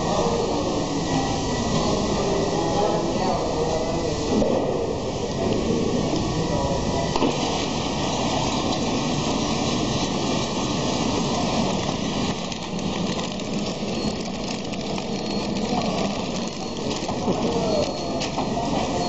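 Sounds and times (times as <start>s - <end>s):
packing machine running: 5.9s - 19.0s.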